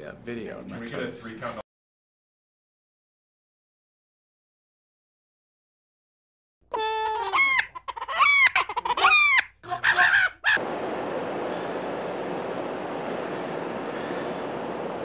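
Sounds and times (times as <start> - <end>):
steady rushing noise: 10.6 - 15.0.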